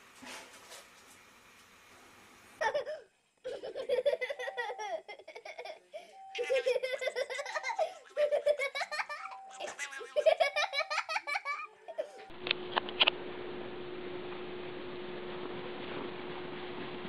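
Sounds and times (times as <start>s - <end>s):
person laughing hard: 2.6s - 12.2s.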